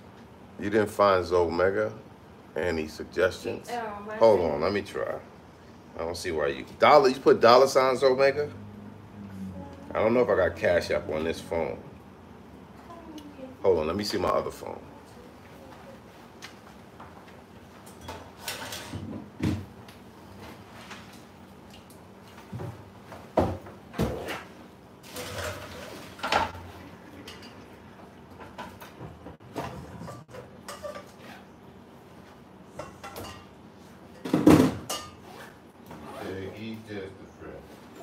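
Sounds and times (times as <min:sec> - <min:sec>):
utensils and cookware clattering: 0:17.8 - 0:19.4, 0:24.0 - 0:31.4, 0:32.7 - 0:35.5.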